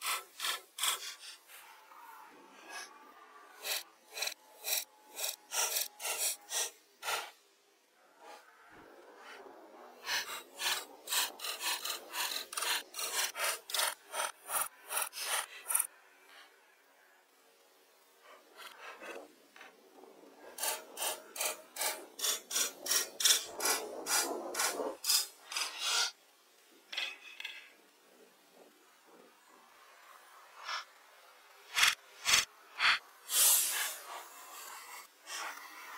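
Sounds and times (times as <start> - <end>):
hand tool cutting wood: 0.0 - 1.7, 3.6 - 7.4, 10.0 - 15.9, 20.6 - 26.1, 31.7 - 35.9.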